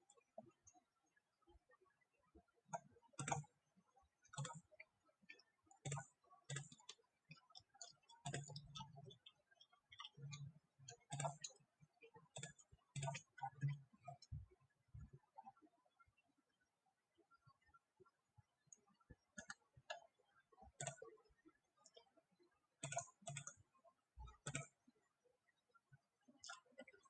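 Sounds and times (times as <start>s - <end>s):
computer mouse clicks: 2.7s - 3.6s, 4.3s - 4.6s, 5.3s - 11.6s, 12.3s - 14.4s, 19.4s - 20.0s, 20.8s - 21.0s, 22.8s - 23.6s, 24.3s - 24.8s.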